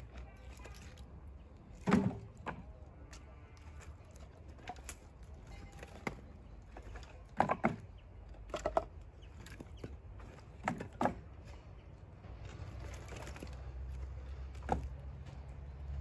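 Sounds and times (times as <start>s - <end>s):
firewood knocking together: 5.7s - 11.6s, 14.5s - 15.4s.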